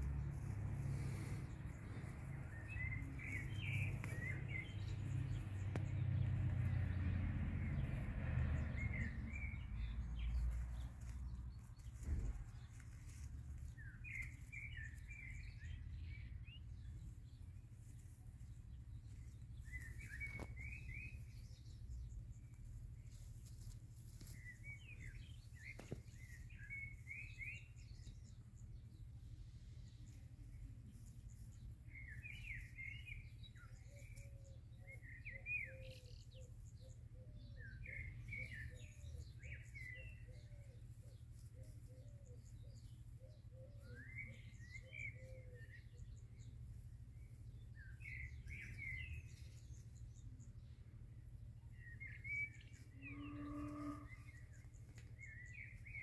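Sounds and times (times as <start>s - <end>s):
low rumble: 0.0s - 24.0s
birds chirping: 0.0s - 56.0s.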